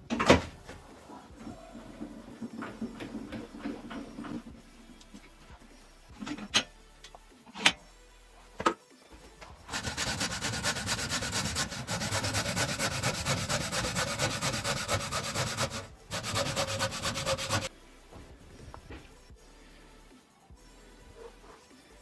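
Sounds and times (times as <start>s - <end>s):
hacksaw cutting metal: 9.7s - 17.7s.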